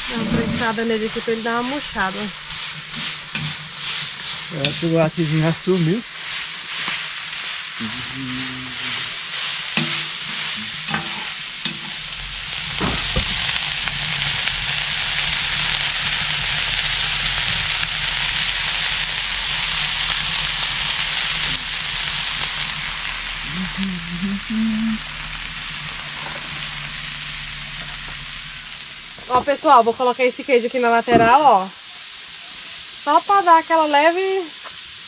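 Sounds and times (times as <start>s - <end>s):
metal spatula scraping pan: 0.0s - 5.4s, 9.7s - 12.1s
meat sizzling in a pan: 0.0s - 35.0s.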